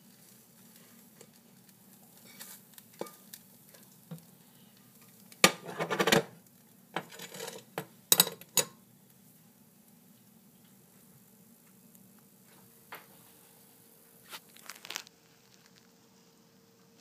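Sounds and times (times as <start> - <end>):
spatula scraping frying pan: 2.1 - 4.0, 4.9 - 6.1, 7.0 - 7.8
spatula and pan clacking: 2.2 - 4.3, 4.9 - 6.4, 7.0 - 8.8.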